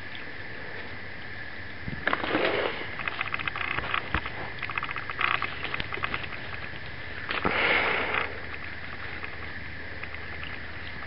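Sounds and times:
raccoon chewing clicks: 2.0s - 11.0s
loud breathy sniff: 7.4s - 8.4s.

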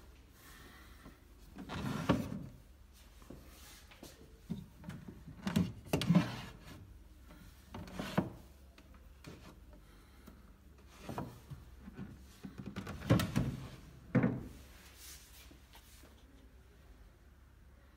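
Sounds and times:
wooden drawers sliding: 1.6s - 2.6s, 5.0s - 6.8s, 7.8s - 8.5s, 10.8s - 14.7s.

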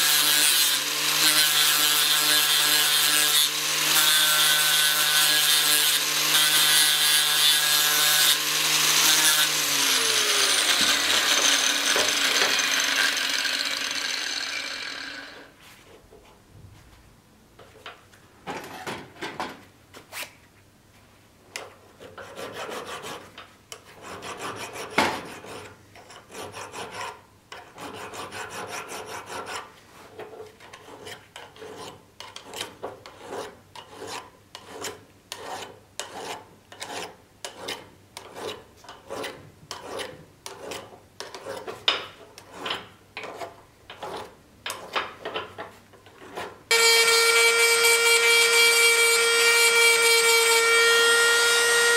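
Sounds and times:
file scraping metal: 0.0s - 15.5s, 21.6s - 45.5s.

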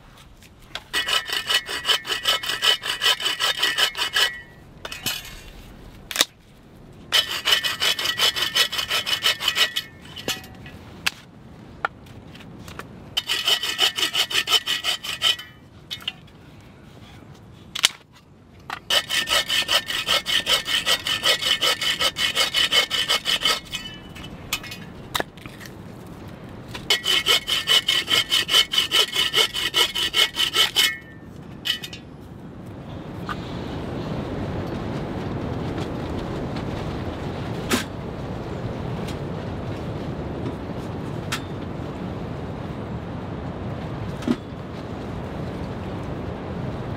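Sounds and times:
hand saw cutting branches: 0.8s - 4.5s, 7.2s - 10.0s, 13.2s - 15.6s, 18.8s - 23.9s, 26.9s - 31.1s.

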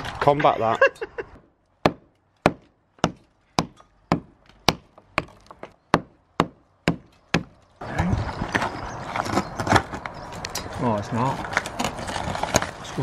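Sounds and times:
hammer striking steel chisel: 1.8s - 7.5s.

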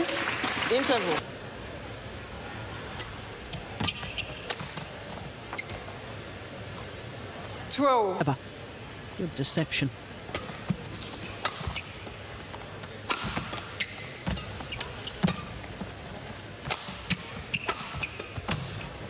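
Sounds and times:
rackets striking shuttlecock: 13.0s - 15.8s, 16.6s - 18.8s.

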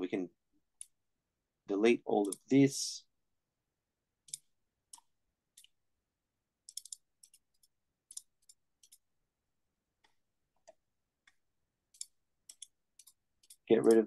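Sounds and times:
computer mouse clicks: 2.2s - 2.5s, 4.2s - 5.8s, 6.6s - 9.0s, 10.0s - 14.0s.

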